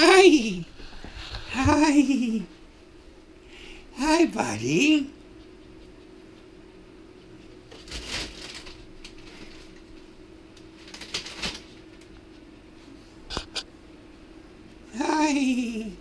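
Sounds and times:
low steady hum: 0.0s - 16.0s
plastic rustling and crinkling: 7.6s - 12.0s.

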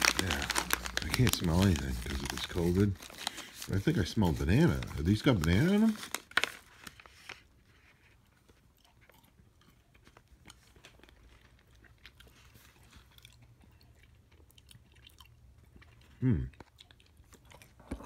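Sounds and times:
low steady hum: 0.0s - 6.9s
plastic snack packets rustling: 0.0s - 9.2s.

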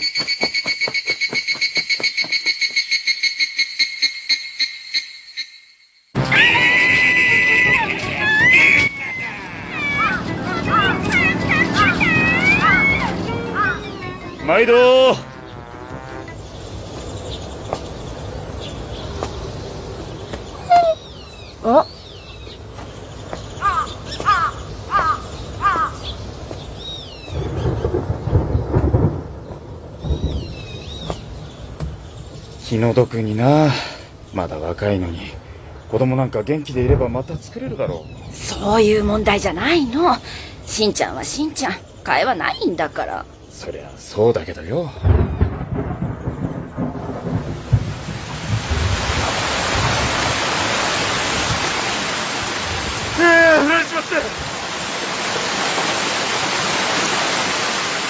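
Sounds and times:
high falling bird chirps: 0.0s - 33.4s, 44.4s - 46.8s
crow cawing: 6.2s - 13.9s, 23.6s - 26.1s
distant thunder rumbling: 6.2s - 21.6s, 22.6s - 33.1s, 44.9s - 56.9s
heavy rain pouring: 6.2s - 43.2s, 44.0s - 58.0s.

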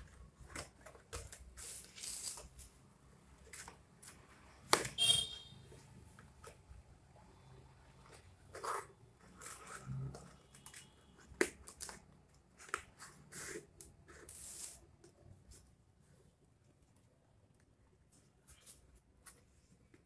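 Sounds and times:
paper rustling: 0.0s - 5.0s.

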